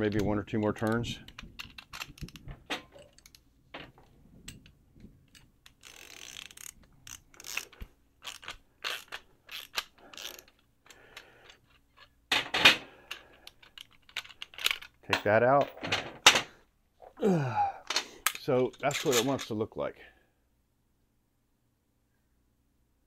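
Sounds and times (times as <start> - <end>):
metal tool clatter: 0.1 - 4.7, 11.4 - 16.6, 17.9 - 19.6
socket ratchet clicking: 0.8 - 2.4, 5.3 - 12.1.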